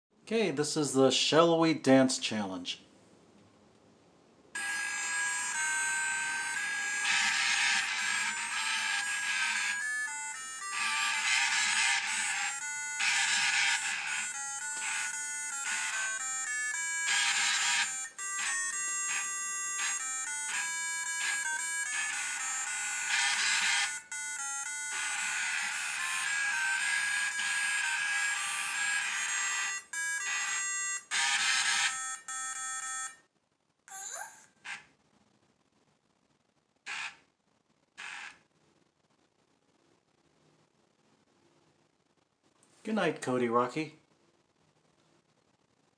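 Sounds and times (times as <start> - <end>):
buzzy electronic tune: 4.6 - 33.1.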